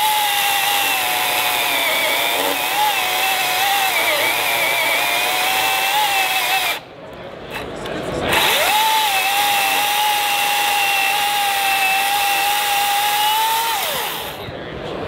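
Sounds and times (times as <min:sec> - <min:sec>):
electric chainsaw cutting log: 0:00.0 - 0:06.8, 0:08.3 - 0:14.4.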